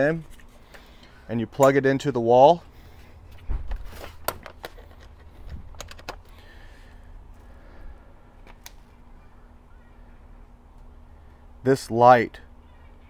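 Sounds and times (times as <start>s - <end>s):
plug clicks and plastic rattles: 3.7s - 6.3s.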